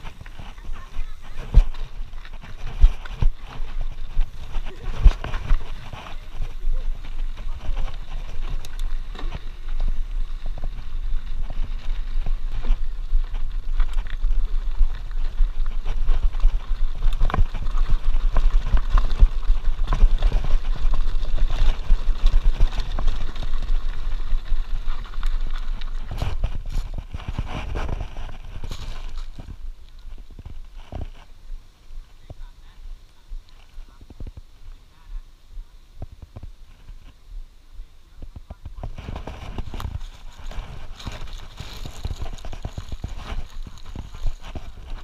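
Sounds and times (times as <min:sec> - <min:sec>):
bike knocks and rattles: 0:00.0 - 0:29.6
bike rumbling over gravel: 0:00.0 - 0:35.2, 0:38.2 - 0:45.0.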